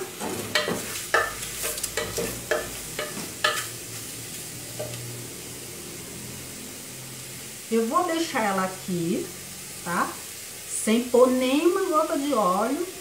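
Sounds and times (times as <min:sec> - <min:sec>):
meat sizzling: 0:00.0 - 0:13.0.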